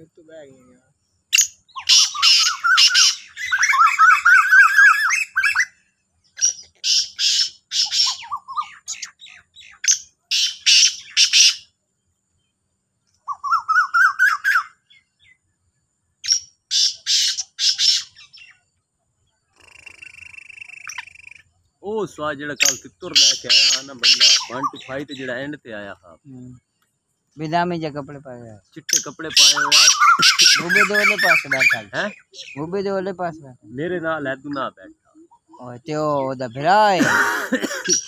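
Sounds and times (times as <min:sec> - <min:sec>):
bird rising chirps: 0:01.2 - 0:27.5, 0:28.4 - 0:32.9, 0:34.0 - 0:38.0
bird harsh grating calls: 0:01.3 - 0:11.7, 0:13.2 - 0:15.4, 0:16.2 - 0:18.6, 0:19.4 - 0:21.5, 0:22.5 - 0:25.9, 0:28.6 - 0:32.8, 0:36.2 - 0:38.0.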